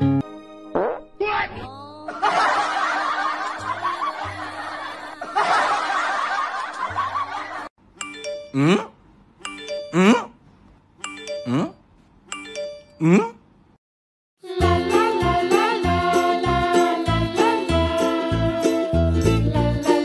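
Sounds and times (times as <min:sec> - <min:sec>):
canned laughter: 0:02.1 - 0:07.7.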